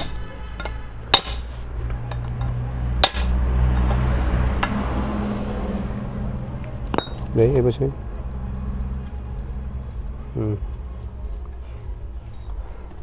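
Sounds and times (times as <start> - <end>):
hammer striking metal: 0.0 - 4.8.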